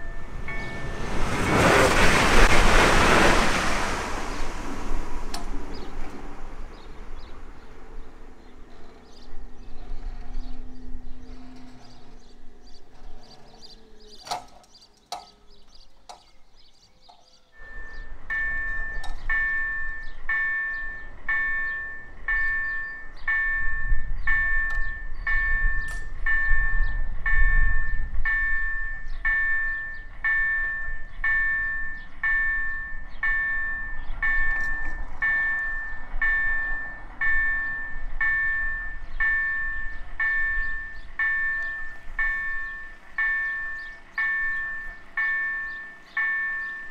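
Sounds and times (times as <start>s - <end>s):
low rumble: 0.0s - 14.1s
level crossing warning bell: 0.0s - 46.9s.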